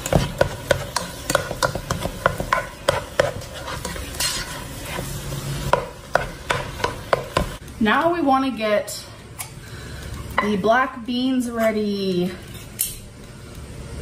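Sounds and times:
spoon scraping a pot: 0:00.0 - 0:07.0
meat sizzling in a pot: 0:00.0 - 0:07.6.

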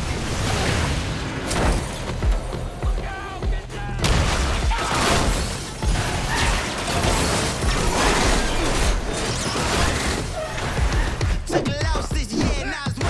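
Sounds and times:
metal crunching and glass shattering: 0:04.0 - 0:11.2.

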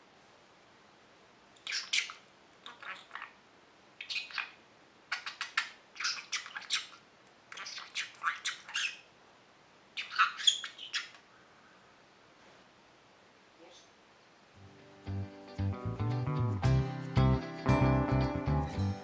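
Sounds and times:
budgerigar mimicking speech: 0:01.7 - 0:03.4, 0:04.0 - 0:07.0.

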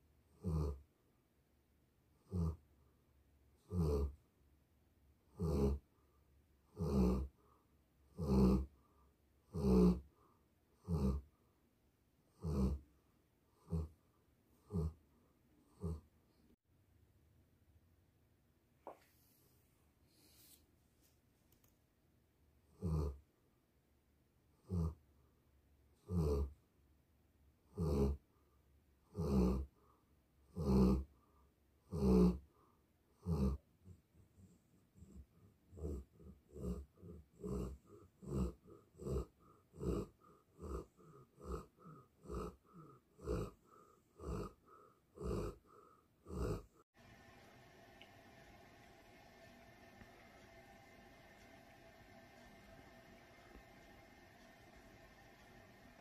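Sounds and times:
dog snoring: 0:00.3 - 0:00.9, 0:02.1 - 0:02.8, 0:03.6 - 0:04.2, 0:05.3 - 0:06.0, 0:06.6 - 0:11.4, 0:12.3 - 0:15.0, 0:15.6 - 0:16.4, 0:22.6 - 0:23.3, 0:24.5 - 0:25.1, 0:26.0 - 0:26.6, 0:27.6 - 0:28.4, 0:29.0 - 0:47.0.

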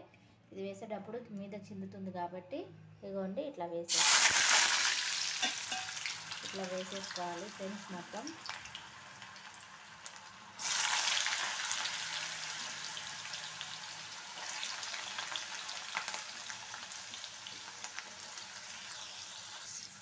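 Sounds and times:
potatoes sizzling in hot oil: 0:03.9 - 0:20.0.

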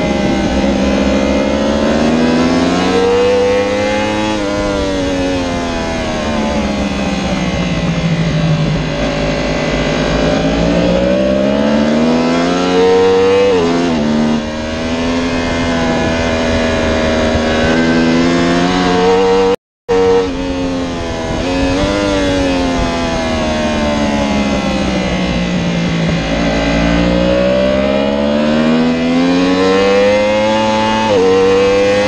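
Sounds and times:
motorcycle engine accelerating hard: 0:00.0 - 0:32.0.

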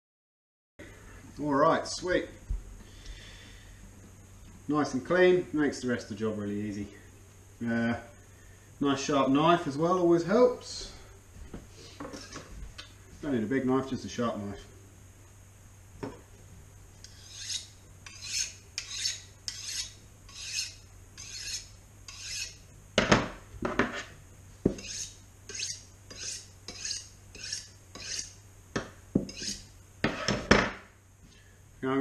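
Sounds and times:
knife scraping on honing steel: 0:12.1 - 0:12.4, 0:17.0 - 0:22.6, 0:24.7 - 0:28.4, 0:29.2 - 0:30.5.

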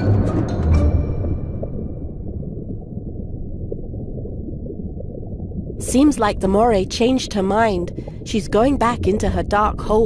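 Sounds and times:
low rumble: 0:00.0 - 0:06.8.

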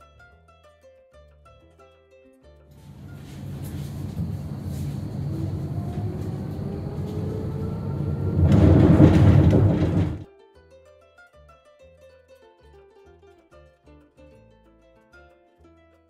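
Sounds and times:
tram rumbling on rails: 0:02.8 - 0:10.3.

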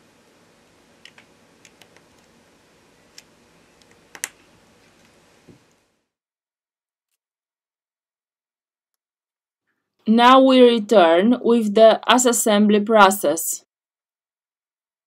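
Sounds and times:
low steady hiss: 0:00.0 - 0:05.9.

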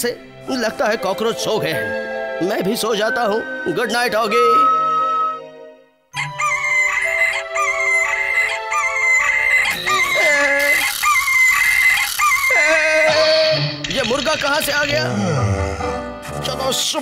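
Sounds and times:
music: 0:00.0 - 0:11.1, 0:12.2 - 0:17.0
cartoon rooster crowing: 0:06.2 - 0:13.5.

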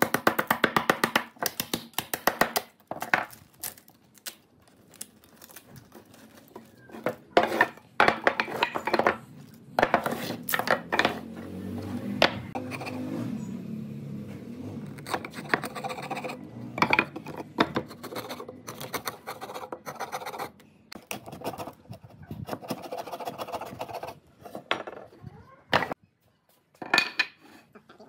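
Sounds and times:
chisel scraping wood: 0:06.9 - 0:11.4, 0:12.5 - 0:13.1, 0:14.8 - 0:16.4, 0:17.0 - 0:25.0
boards knocking on workbench: 0:07.0 - 0:09.2.

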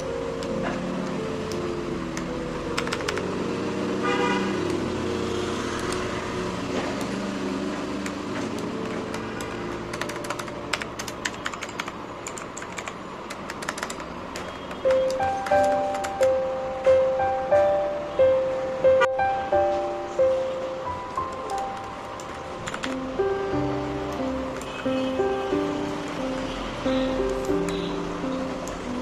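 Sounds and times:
mechanical keyboard clicking: 0:00.0 - 0:03.4, 0:08.0 - 0:16.4, 0:21.2 - 0:23.1
soft background music: 0:00.0 - 0:29.0.

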